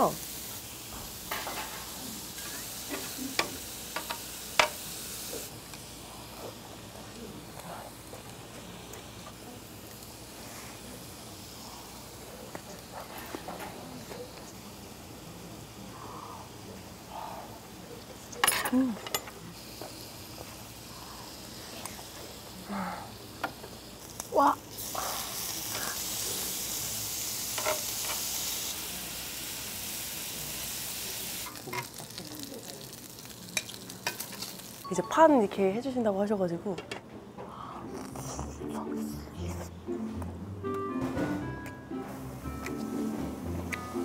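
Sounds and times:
meat sizzling on grill plate: 0.0 - 17.0, 17.8 - 35.2
person humming with enjoyment: 37.8 - 39.8.

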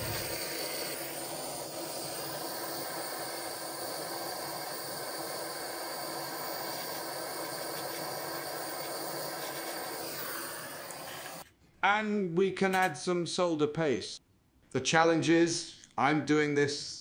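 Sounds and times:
gas torch flame hissing: 0.0 - 11.4.

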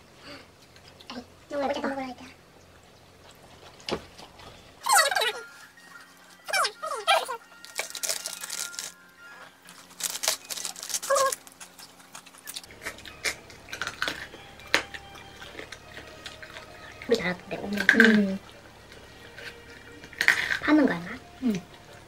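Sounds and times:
plastic wrappers crinkling: 3.6 - 18.4
background music: 4.8 - 22.0.

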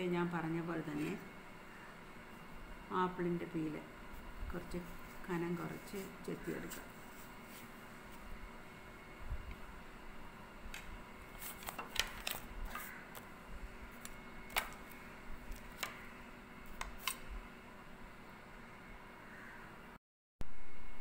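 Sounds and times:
handling apple peel: 4.7 - 8.3, 11.3 - 13.3
knife peeling an apple: 11.3 - 13.3.

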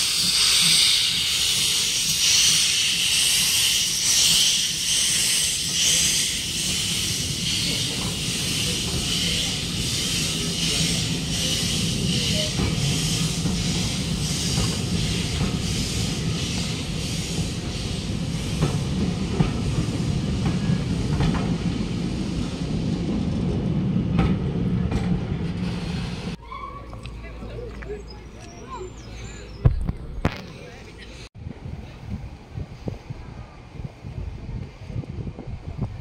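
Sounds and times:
steam hissing: 0.0 - 22.2
train coaches rumbling: 0.0 - 36.0.

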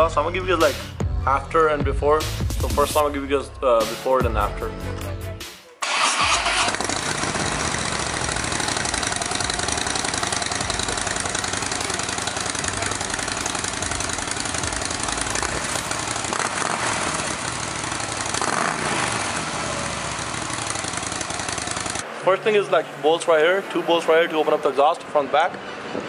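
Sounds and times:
motorcycle engine idling: 6.0 - 22.0.

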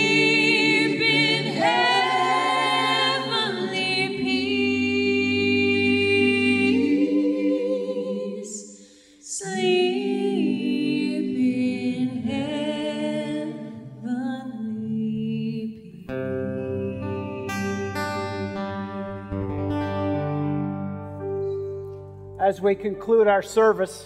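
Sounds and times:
voices singing unaccompanied: 0.0 - 15.8
acoustic guitar strumming: 16.1 - 24.0.

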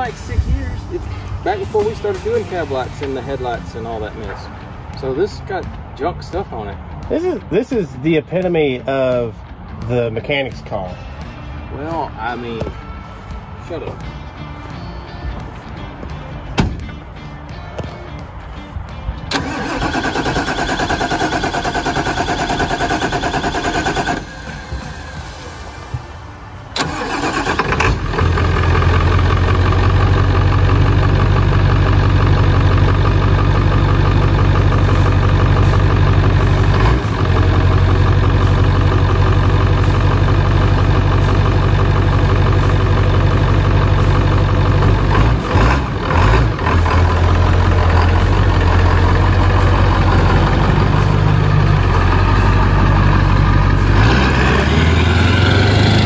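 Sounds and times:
truck engine revving pulling away: 19.3 - 25.9, 26.7 - 56.0
diesel truck engine idling: 19.3 - 56.0.

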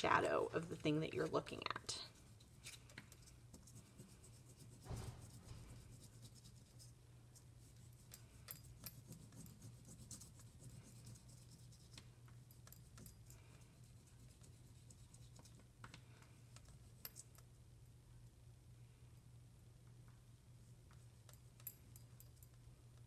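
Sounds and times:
low steady hum: 0.0 - 23.0
oil pastel scratching on paper: 3.5 - 8.1, 9.0 - 12.0.

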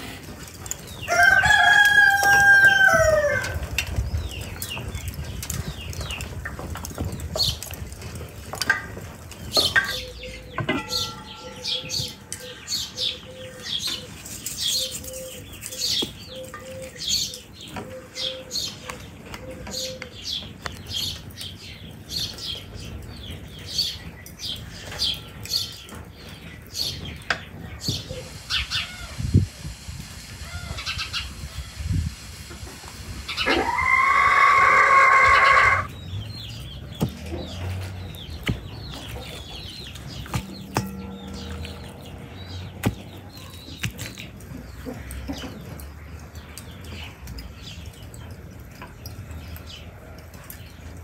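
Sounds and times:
rooster crowing: 1.1 - 3.6, 33.5 - 35.9
small birds chirping: 2.7 - 51.0.

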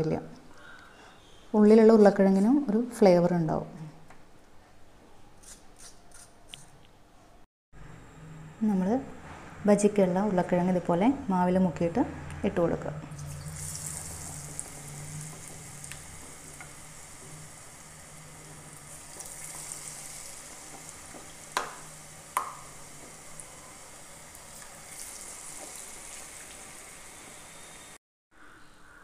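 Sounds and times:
potato slices sizzling in hot oil: 13.2 - 28.0.

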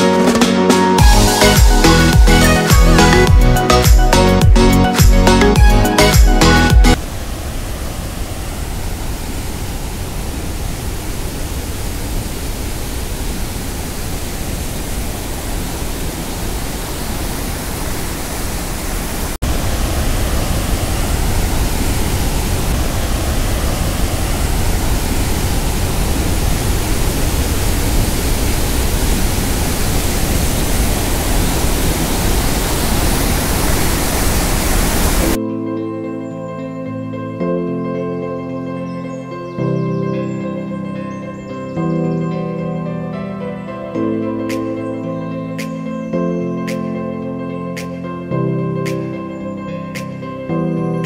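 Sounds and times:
waterfall rushing: 6.0 - 35.4
soft background music: 35.3 - 51.0.

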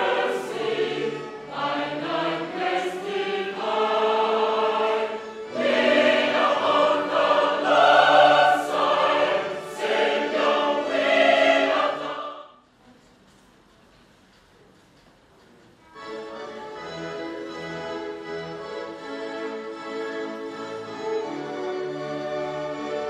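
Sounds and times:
choir singing a hymn: 0.0 - 12.6.

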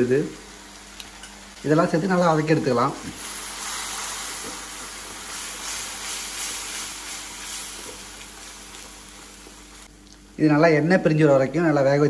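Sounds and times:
paste sizzling in hot oil: 3.1 - 9.9.

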